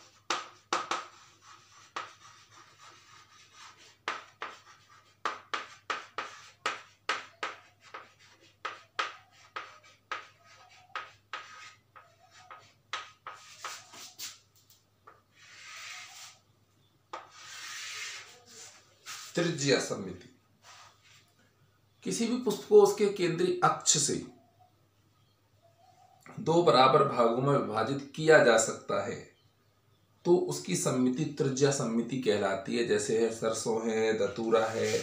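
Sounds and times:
chalk tapping and scratching on blackboard: 0:00.0 - 0:16.4, 0:17.1 - 0:19.4, 0:20.6 - 0:21.2, 0:34.4 - 0:35.0.

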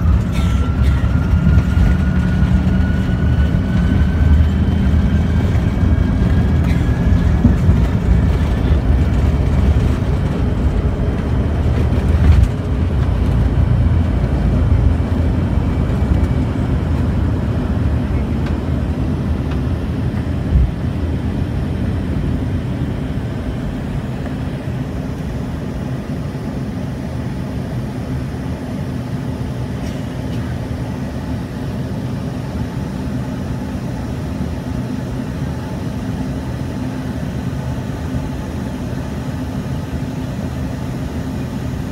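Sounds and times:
runway rumble: 0:00.0 - 0:25.1
jet engines at takeoff power: 0:00.0 - 0:41.9.

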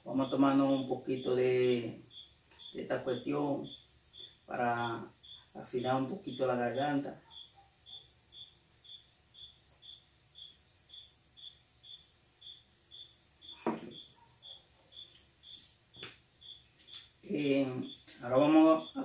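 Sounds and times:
crickets chirping: 0:00.0 - 0:19.0
high insect trill: 0:00.0 - 0:19.0
short knocks: 0:13.6 - 0:14.0.

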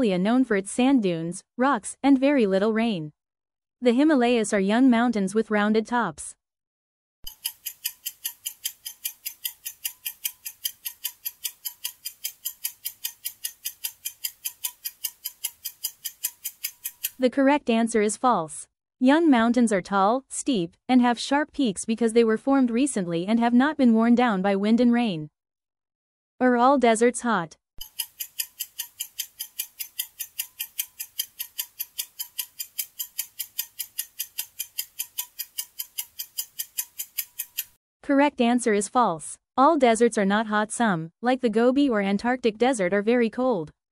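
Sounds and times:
clock ticking fast: 0:07.3 - 0:17.2, 0:27.8 - 0:37.8.

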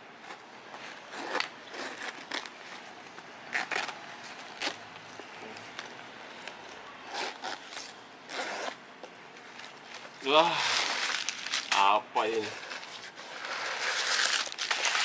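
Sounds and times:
zippers being worked: 0:00.2 - 0:02.8, 0:03.5 - 0:04.0, 0:07.0 - 0:08.8, 0:12.3 - 0:15.0
leather bag rustling: 0:09.5 - 0:11.8.

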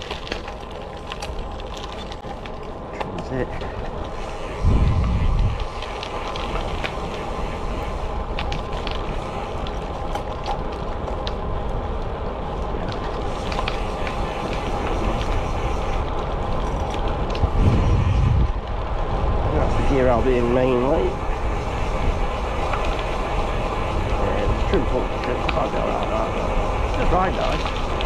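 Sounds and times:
bike tyre rumble: 0:00.0 - 0:28.0
wind rush: 0:04.1 - 0:08.3, 0:13.0 - 0:28.0.

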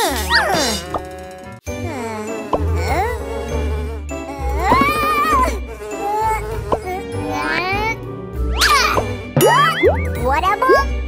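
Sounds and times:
squeaky cartoon voices: 0:00.0 - 0:01.1, 0:04.2 - 0:08.0, 0:09.6 - 0:10.9
playful cartoon music: 0:00.0 - 0:11.0.

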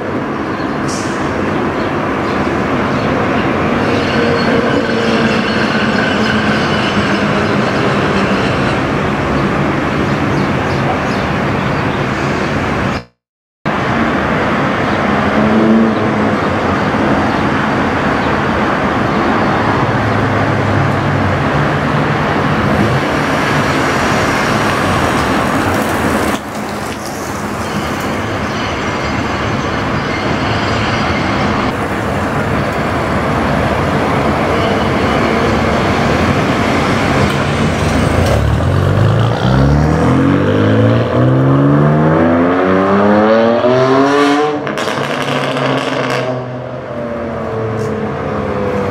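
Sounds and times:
loud rushing noise: 0:11.4 - 0:47.0.

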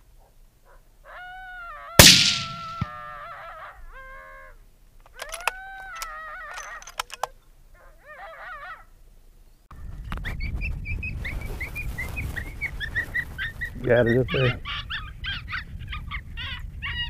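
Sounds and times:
coyote howling: 0:01.0 - 0:02.0, 0:02.8 - 0:04.6, 0:05.2 - 0:06.8, 0:07.8 - 0:08.9
sharp clicks: 0:02.0 - 0:03.0, 0:05.0 - 0:07.3
high yips or chirps: 0:02.0 - 0:03.3
wind noise on microphone: 0:09.7 - 0:17.0.

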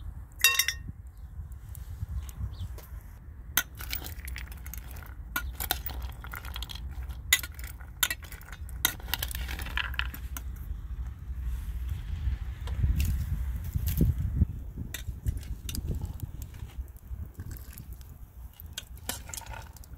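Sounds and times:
low steady rumble: 0:00.0 - 0:19.9
dry beans rattling: 0:03.6 - 0:10.6, 0:15.1 - 0:19.9.

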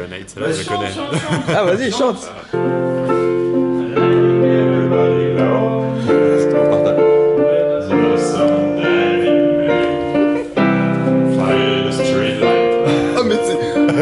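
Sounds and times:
digital piano chords: 0:02.5 - 0:14.0
man singing into a microphone: 0:03.8 - 0:10.5, 0:11.3 - 0:12.8.

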